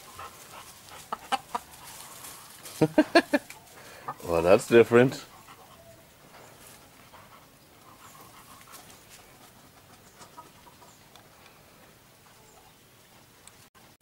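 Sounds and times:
dog panting: 0.0 - 2.4, 4.8 - 10.7.

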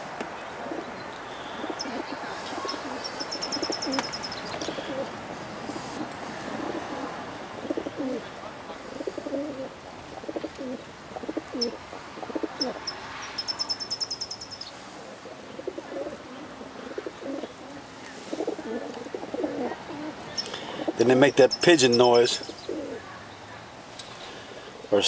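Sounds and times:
pigeons cooing: 0.6 - 23.2
rapid high chirps: 1.6 - 4.6, 12.6 - 14.8, 21.4 - 22.3.

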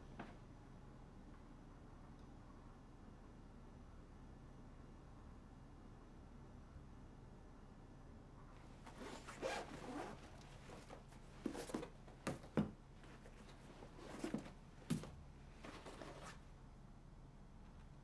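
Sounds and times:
fabric rustling: 8.6 - 16.5
zipper being pulled open: 8.8 - 11.8.

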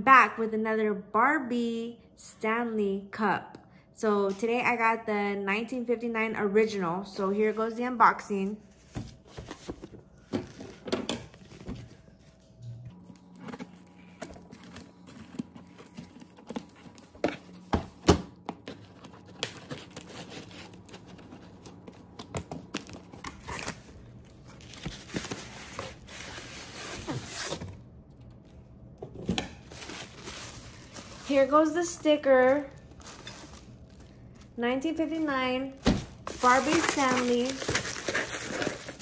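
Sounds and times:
paper crinkling and rustling: 8.7 - 17.7, 18.6 - 27.8, 29.6 - 39.0.

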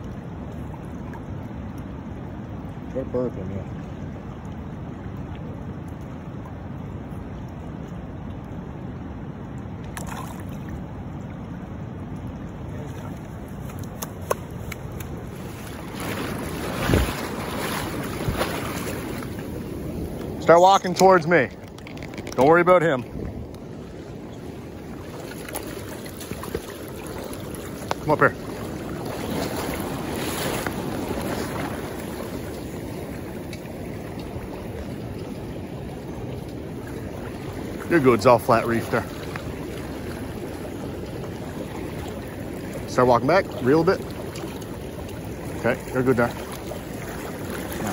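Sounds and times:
river water rushing: 0.0 - 47.9
water splashing: 0.0 - 47.9
wind buffeting the microphone: 10.7 - 47.9.

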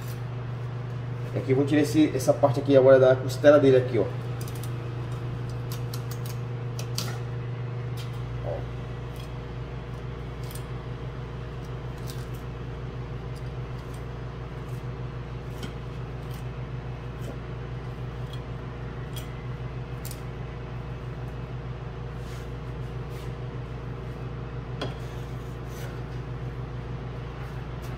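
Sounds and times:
low electrical hum: 0.0 - 27.9
knife clicking and scraping bones: 4.4 - 7.2, 10.4 - 10.7, 11.6 - 12.4, 18.1 - 19.4, 20.0 - 20.3.

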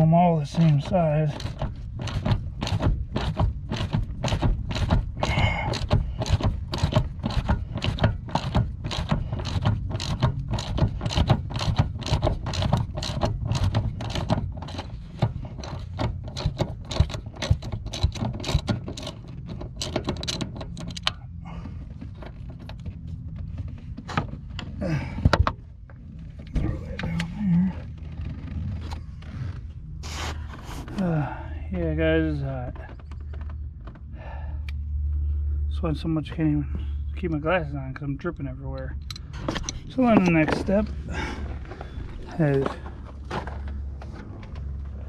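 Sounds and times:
ratchet wrench clicking: 0.8 - 14.9, 15.6 - 21.2.

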